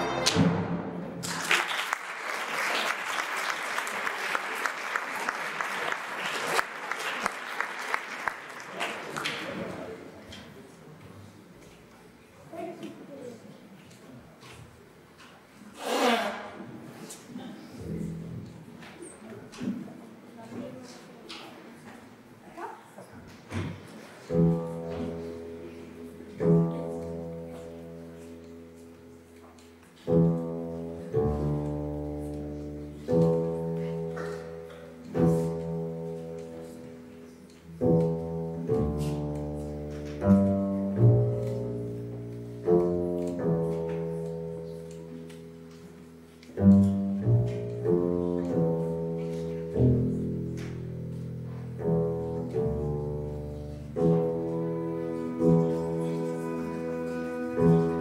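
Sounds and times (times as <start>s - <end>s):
double bass plucked notes: 37.8s - 44.4s, 46.6s - 58.0s.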